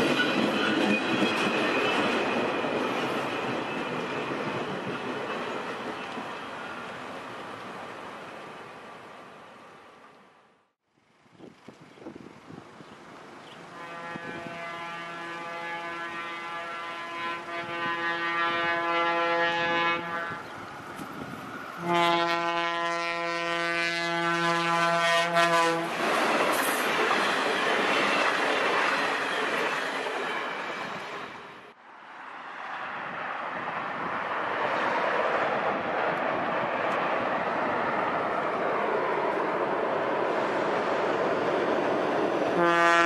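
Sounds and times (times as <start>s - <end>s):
train wheels rumbling: 0.0s - 9.2s, 13.2s - 31.8s
train horn blasts: 13.7s - 20.5s, 21.8s - 26.0s, 42.6s - 43.0s.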